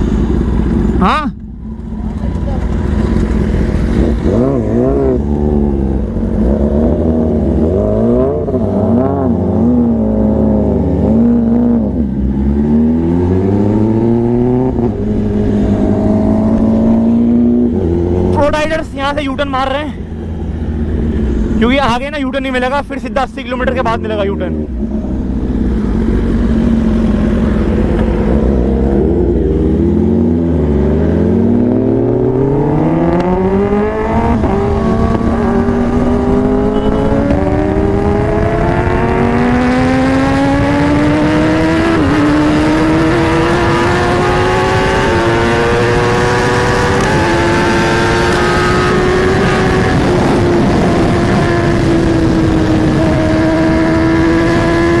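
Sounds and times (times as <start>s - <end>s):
motorcycle engine accelerating: 0.0s - 21.8s, 23.6s - 55.0s
wind noise: 23.7s - 55.0s.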